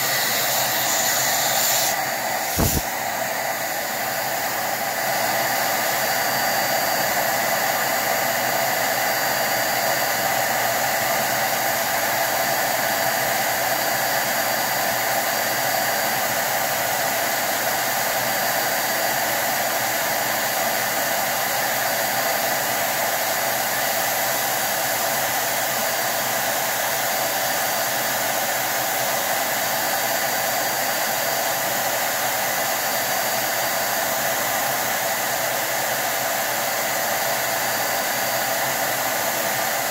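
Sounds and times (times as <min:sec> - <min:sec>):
electric duster blowing air: 0:00.0 - 0:39.9.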